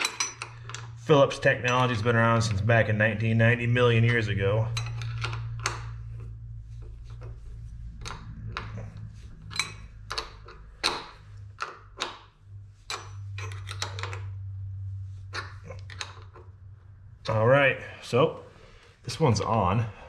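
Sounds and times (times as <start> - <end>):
wrench clinking on bolt: 0.0 - 1.0, 4.7 - 6.0, 8.0 - 12.3, 12.9 - 14.3
steady low hum: 0.0 - 20.0.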